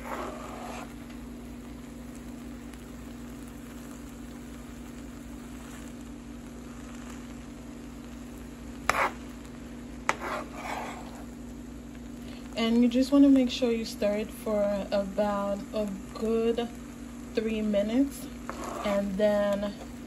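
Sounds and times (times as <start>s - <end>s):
spatula stirring rice in pan: 0.0s - 1.3s, 2.0s - 11.6s, 18.2s - 20.0s
faint sizzle: 0.0s - 20.0s
steady low hum: 0.0s - 20.0s.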